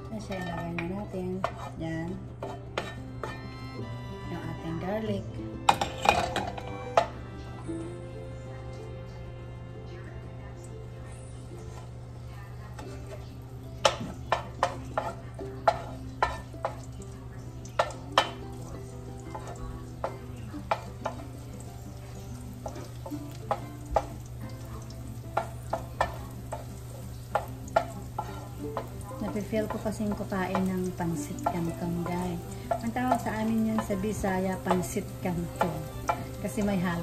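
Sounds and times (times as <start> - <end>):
garlic frying in oil: 0.0 - 3.4, 11.6 - 37.0
wooden spoon knocking pan: 27.3 - 34.0.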